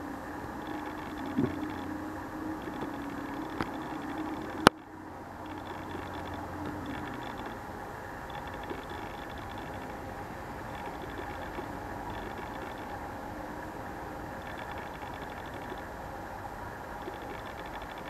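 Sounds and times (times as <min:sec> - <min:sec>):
faint hum: 0:00.0 - 0:18.0
microphone hiss: 0:00.0 - 0:18.0
small clicks: 0:00.6 - 0:02.0, 0:02.6 - 0:10.0, 0:10.6 - 0:13.0, 0:14.4 - 0:15.9, 0:17.0 - 0:18.0.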